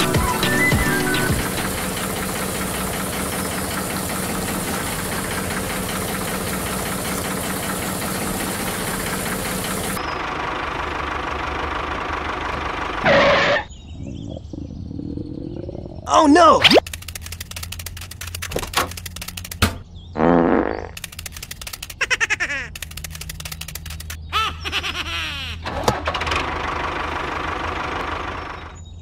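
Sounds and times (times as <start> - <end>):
water pouring and splashing: 1.4 - 10.0.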